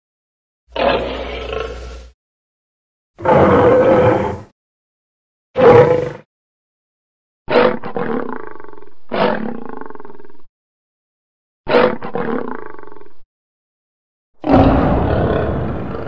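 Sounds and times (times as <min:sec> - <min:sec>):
lion roaring: 0:00.7 - 0:02.1, 0:03.2 - 0:04.5, 0:05.6 - 0:06.2, 0:14.4 - 0:16.0.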